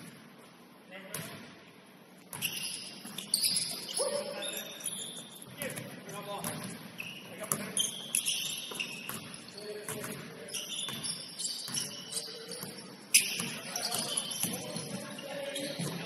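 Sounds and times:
basketball bouncing on court: 1.1 - 1.5, 2.3 - 3.9, 5.5 - 16.0
sneaker squeaks: 2.3 - 16.0.

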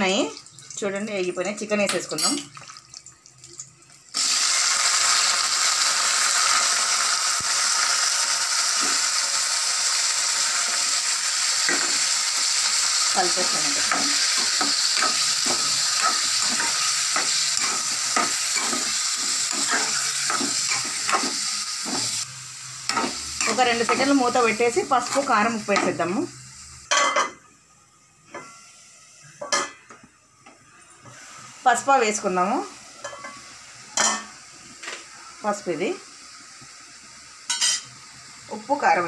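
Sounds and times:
chicken sizzling in oil: 2.5 - 27.0, 31.1 - 39.0
spoon scraping pan: 13.3 - 22.3.

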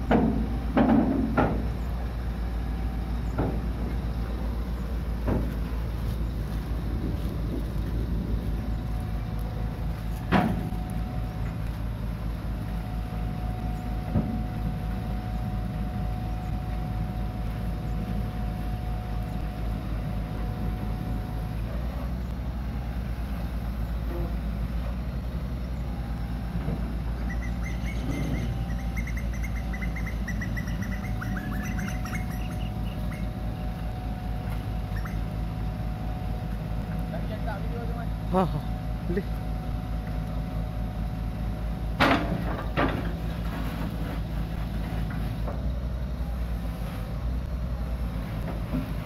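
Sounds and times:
hydraulics lowering boom: 0.0 - 36.9, 39.7 - 49.0
excavator diesel engine running: 0.0 - 49.0
high chirps: 27.2 - 33.4.

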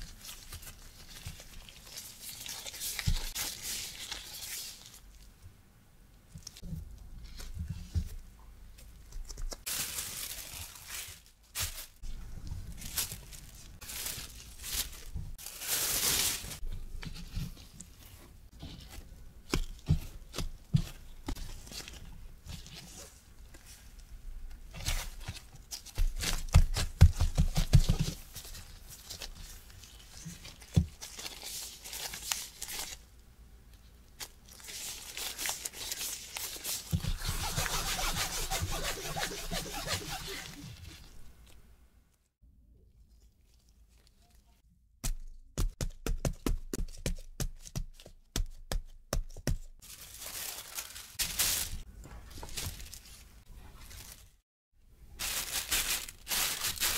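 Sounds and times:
hands patting dough: 25.2 - 28.4, 45.0 - 49.8
hands rubbing dough: 34.6 - 41.5
cloth rustling: 34.7 - 41.6.

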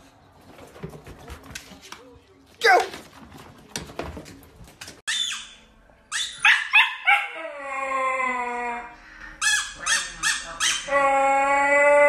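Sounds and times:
puppy yipping: 5.1 - 7.4
puppy howling: 7.0 - 9.0, 10.8 - 12.0.

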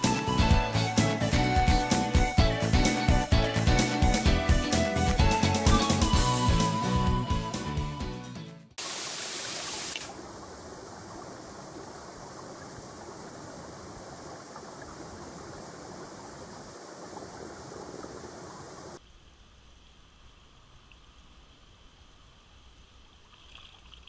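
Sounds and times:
stream rushing over stones: 8.8 - 19.0.

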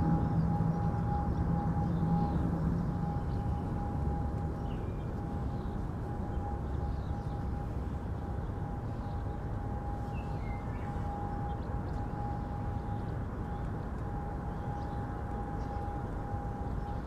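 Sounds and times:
faint steady hum: 0.0 - 17.0
faint bird chirps: 8.9 - 13.6.

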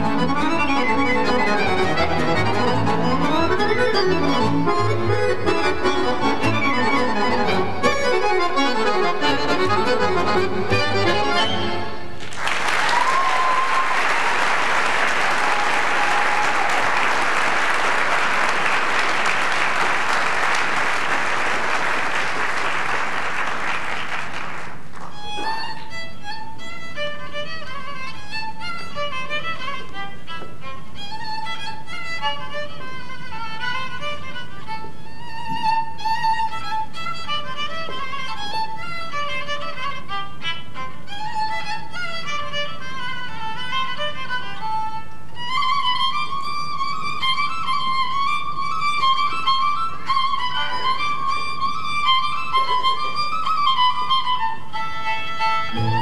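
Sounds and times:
folk string ensemble: 0.0 - 12.3, 12.9 - 56.0
audience applauding: 12.2 - 25.2
solo horned violin melody: 25.2 - 56.0.

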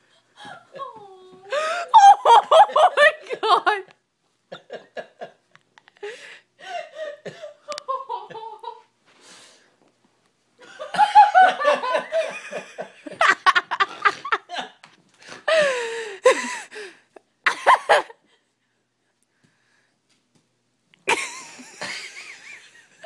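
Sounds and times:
person laughing hard: 1.5 - 3.8, 10.6 - 14.8, 17.5 - 18.2, 21.1 - 22.8.

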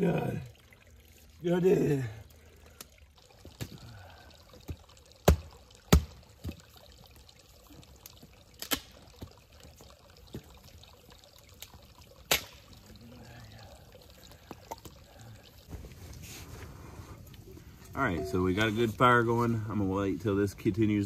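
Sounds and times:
campfire crackling: 0.0 - 19.2
sharp pops of fire: 12.3 - 12.6.

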